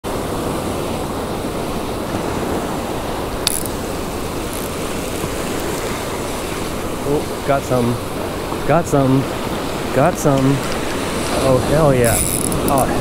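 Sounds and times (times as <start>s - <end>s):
ocean surf washing on sand: 0.0s - 13.0s
sharp click: 3.5s - 3.8s.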